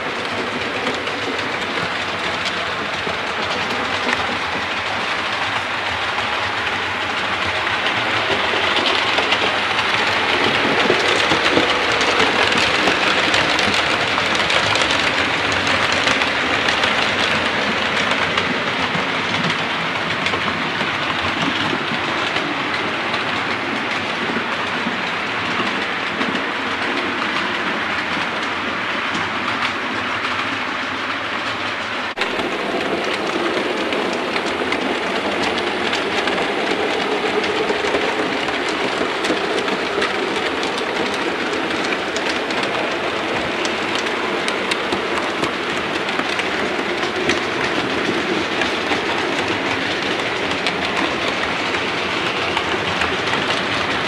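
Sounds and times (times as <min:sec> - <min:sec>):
train wheels clattering on track: 0:00.0 - 0:54.0.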